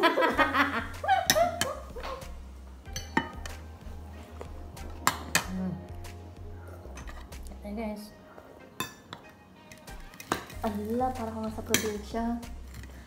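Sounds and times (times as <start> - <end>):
woman laughing: 0.0 - 2.3
music with low beat: 0.2 - 8.6.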